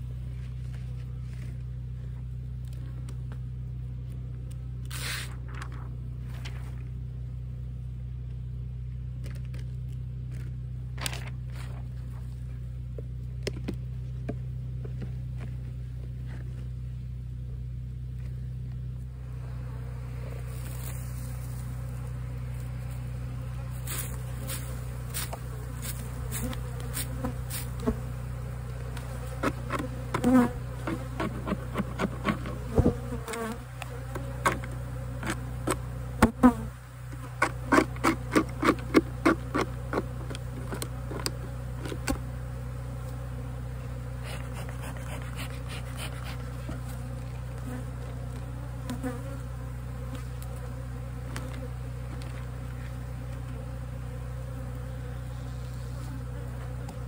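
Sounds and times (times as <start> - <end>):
honeybees humming: 0.0 - 57.0
quick brush strokes: 4.9 - 5.4, 23.7 - 27.8, 44.2 - 47.0.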